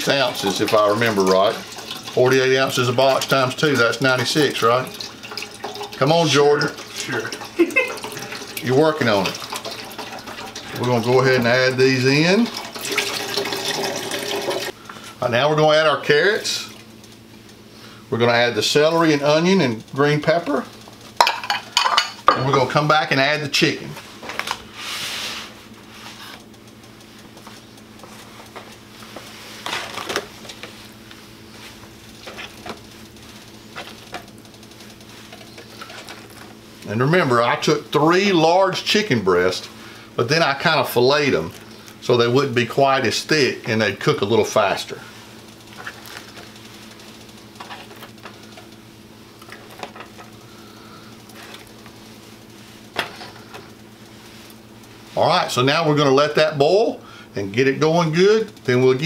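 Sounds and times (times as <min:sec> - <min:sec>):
steady low hum: 0:14.6 - 0:59.0.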